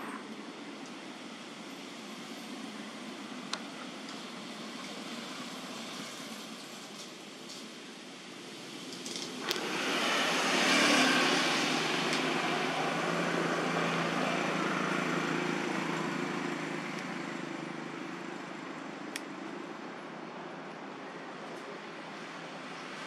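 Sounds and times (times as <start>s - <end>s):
vehicle engine passing by: 9.4s - 18.3s.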